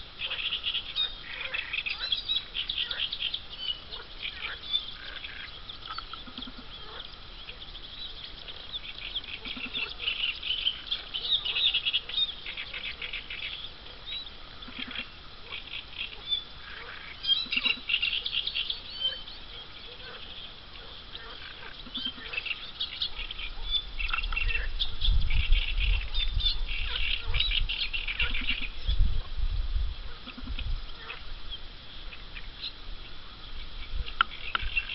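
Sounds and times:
ducklings peeping: 0.0s - 29.1s
short low duck calls: 9.3s - 10.4s, 14.6s - 18.4s.

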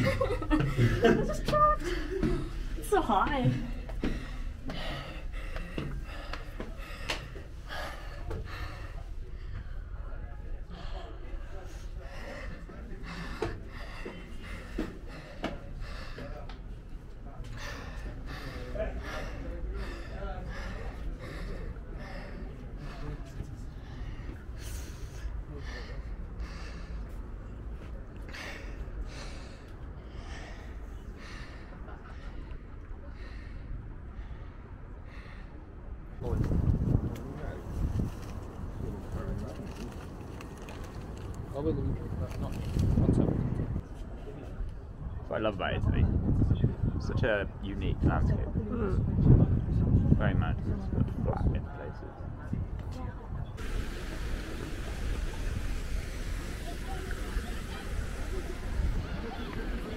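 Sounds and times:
person breathing hard and fast: 1.8s - 36.1s
wind rumble on microphone: 36.2s - 59.9s.

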